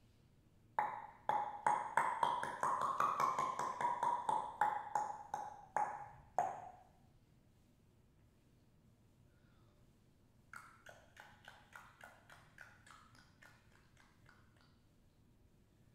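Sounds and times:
hand knocking on head: 0:00.8 - 0:06.6.

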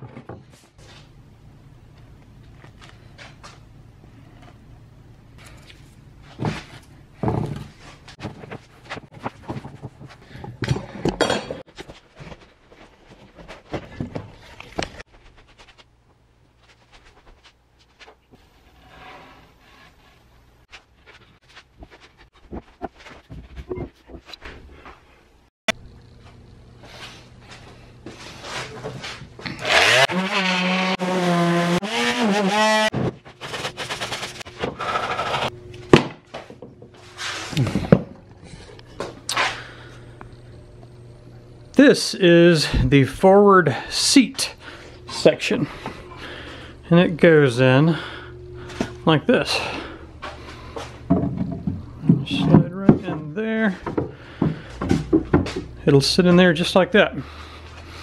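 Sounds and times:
scraping strokes: 0:16.6 - 0:23.6
power tool motor running: 0:29.6 - 0:32.9
tool and wood knocks: 0:51.1 - 0:53.2.

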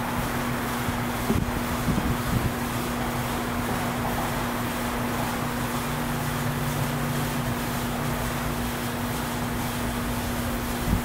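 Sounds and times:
wind noise on microphone: 0:00.8 - 0:02.8, 0:10.2 - 0:11.0.

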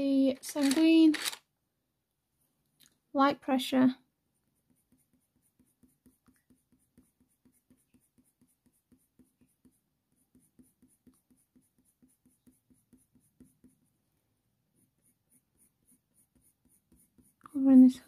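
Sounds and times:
pencil scratching on paper: 0:04.3 - 0:18.0.

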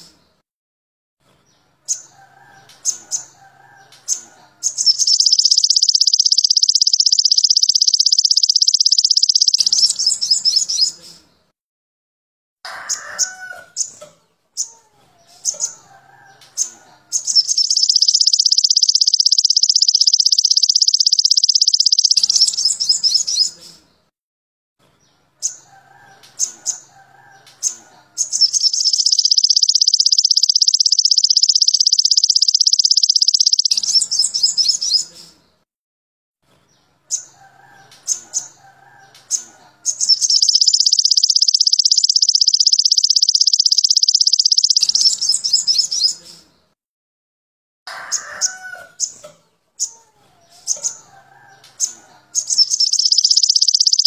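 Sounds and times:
soft low bird twittering: 0:01.9 - 0:11.1, 0:15.5 - 0:23.7, 0:25.5 - 0:35.2, 0:37.2 - 0:46.3, 0:50.7 - 0:54.0
bird short sharp chirps: 0:04.1 - 0:11.2, 0:16.4 - 0:23.7, 0:25.5 - 0:35.3, 0:37.1 - 0:46.4, 0:50.6 - 0:54.0
bird high rapid trills: 0:04.6 - 0:10.9, 0:17.2 - 0:23.5, 0:28.2 - 0:35.1, 0:39.9 - 0:46.2, 0:52.4 - 0:54.0.

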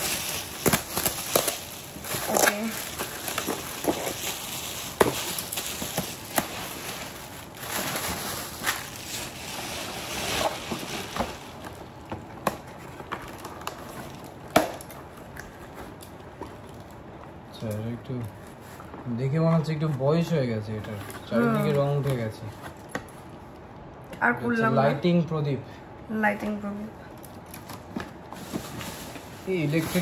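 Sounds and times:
wrapping paper rustling: 0:00.0 - 0:17.2, 0:27.2 - 0:30.0.

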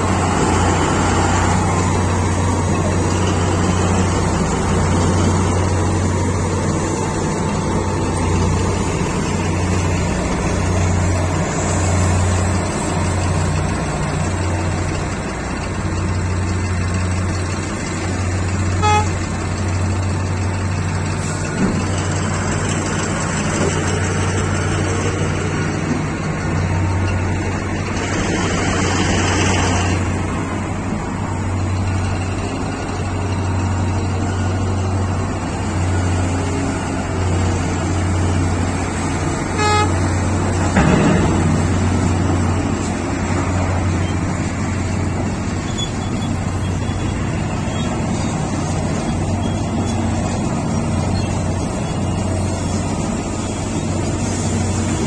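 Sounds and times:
large diesel engines droning: 0:00.0 - 0:55.0
horn toot: 0:18.8 - 0:19.2, 0:39.5 - 0:40.2.

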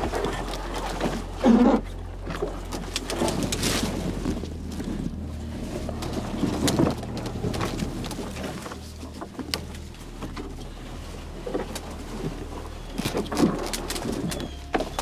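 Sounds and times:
branches scraping against canoe hull: 0:00.0 - 0:15.0
low rumble: 0:00.0 - 0:15.0
twigs snapping: 0:02.2 - 0:05.2, 0:05.8 - 0:10.7, 0:11.4 - 0:15.0.

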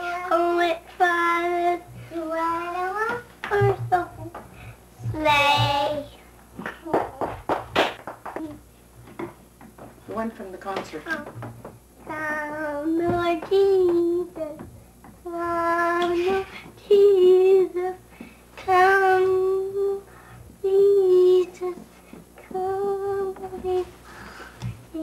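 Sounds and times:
child singing long notes: 0:12.1 - 0:14.6, 0:15.3 - 0:18.0.

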